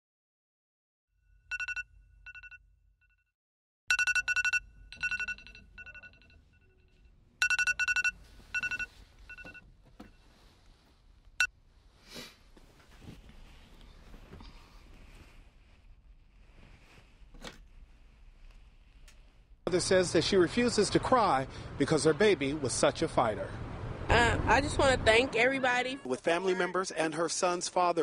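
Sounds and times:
mobile phone ringing: 0:01.5 - 0:02.6, 0:03.9 - 0:09.6
bedding rustling: 0:08.2 - 0:19.6.

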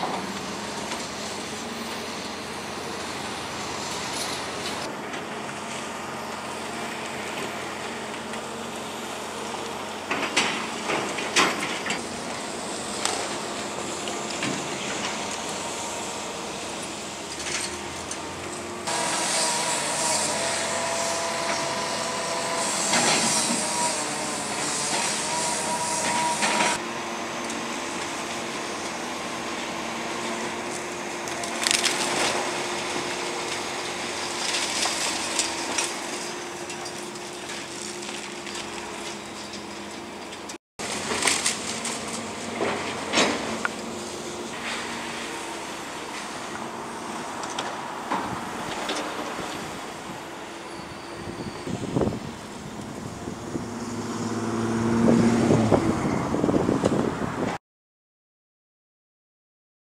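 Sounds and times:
excavator diesel engine running: 0:00.0 - 0:57.4
wood cracking and splintering: 0:28.9 - 0:43.9.

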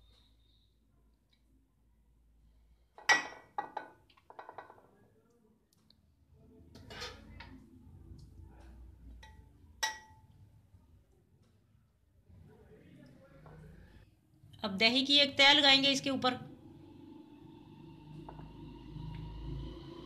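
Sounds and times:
metal spoon clinking on glass dish: 0:09.2 - 0:10.2.

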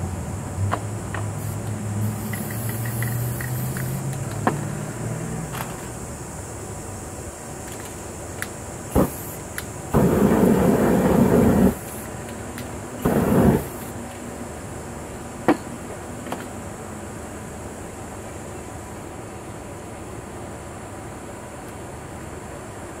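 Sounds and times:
spray can hissing: 0:01.4 - 0:04.1, 0:08.9 - 0:12.4, 0:13.0 - 0:14.0.

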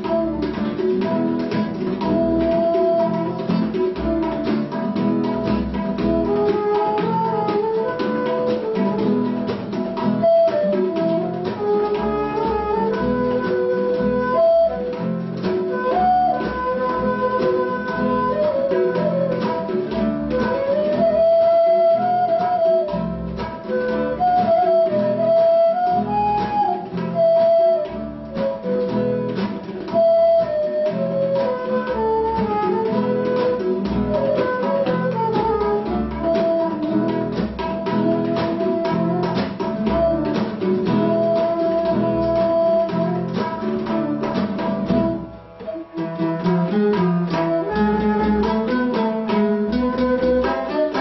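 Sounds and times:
bamboo flute melody: 0:00.0 - 0:51.0
plucked acoustic guitar: 0:00.0 - 0:51.0
tabla strokes: 0:42.0 - 0:51.0.

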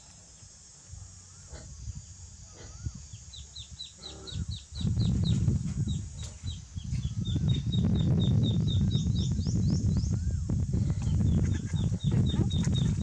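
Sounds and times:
low rumble on microphone: 0:00.9 - 0:13.0
duckling peeping: 0:10.9 - 0:13.0.

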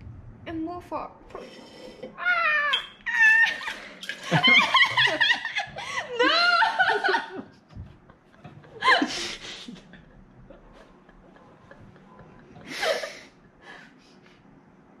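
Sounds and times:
woman laughing breathily: 0:03.6 - 0:14.4.

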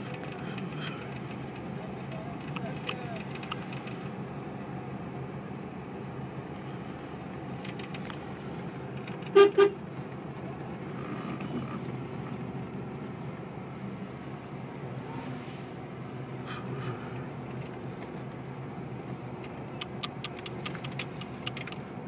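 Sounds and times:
road traffic noise: 0:00.0 - 0:22.0
vehicle horn blasts: 0:09.3 - 0:09.8.

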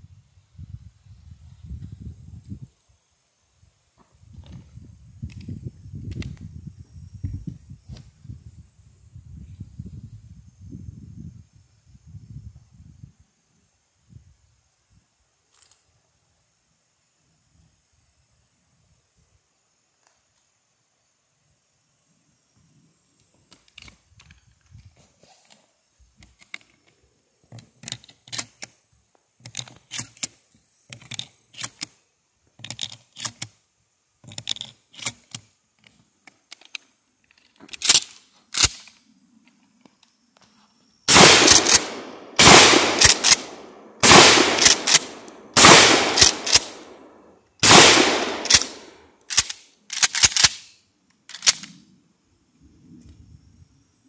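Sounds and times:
shotgun action clicks: 0:29.4 - 0:32.0, 0:37.7 - 0:39.0, 0:41.1 - 0:51.8
loud shotgun shots: 0:41.1 - 0:49.0.

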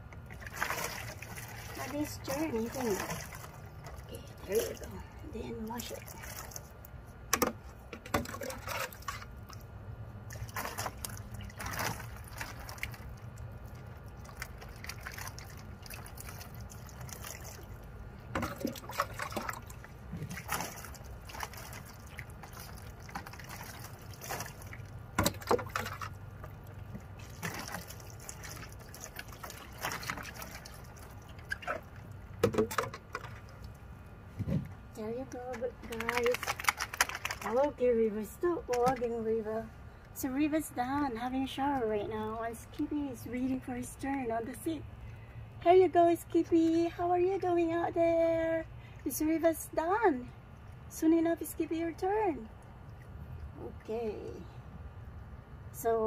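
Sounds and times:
short water splashes: 0:00.2 - 0:07.5, 0:08.1 - 0:37.8
water trickling and dripping: 0:08.3 - 0:34.2, 0:52.4 - 0:54.4.

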